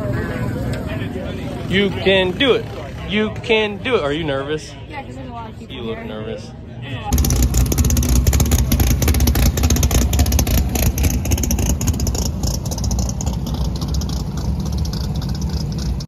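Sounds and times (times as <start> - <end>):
drag racing car engine idling: 7.1 - 16.0.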